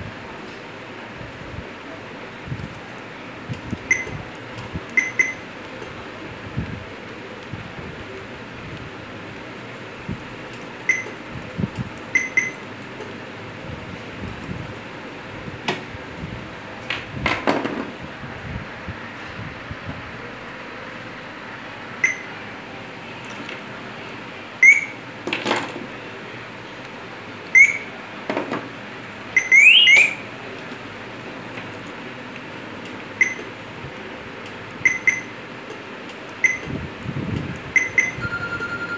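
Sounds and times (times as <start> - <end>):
short electronic beeps: 3.9 - 4.2, 5.0 - 5.4, 10.9 - 11.1, 12.2 - 12.6, 22.0 - 22.3, 24.6 - 25.0, 27.6 - 27.9, 29.4 - 30.2, 33.2 - 33.4, 34.8 - 35.3, 36.4 - 36.6, 37.8 - 38.9
rising siren-like chirp: 29.4 - 30.2.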